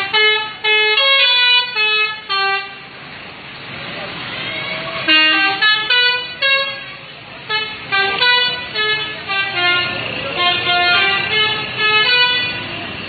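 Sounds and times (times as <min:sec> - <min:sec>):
multi-tone air horn tune: 0:00.0 - 0:02.8, 0:05.0 - 0:12.7.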